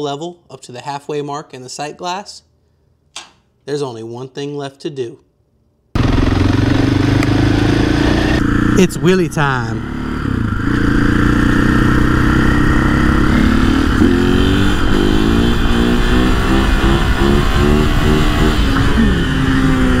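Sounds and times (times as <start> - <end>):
motorcycle engine revving: 6.0 - 20.0.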